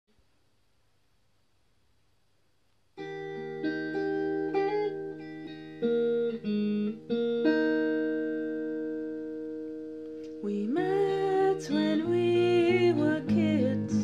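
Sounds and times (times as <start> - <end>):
electric guitar playing: 3.0 - 14.0.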